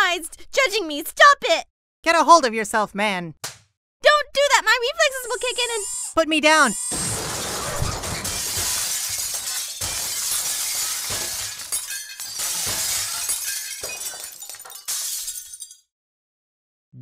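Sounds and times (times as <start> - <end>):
glass shattering and crashing: 6.9 - 15.9.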